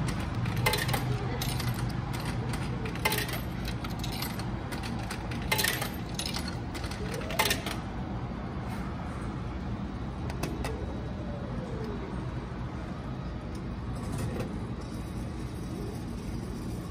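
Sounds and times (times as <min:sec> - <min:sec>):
coins clinking into slot: 0:00.0 - 0:07.8.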